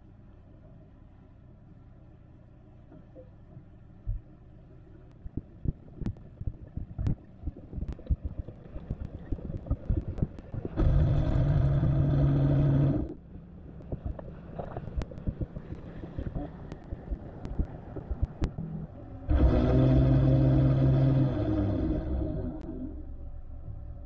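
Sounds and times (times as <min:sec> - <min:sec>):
loud mechanical hum: 0:10.7 - 0:14.1, 0:17.6 - 0:24.0.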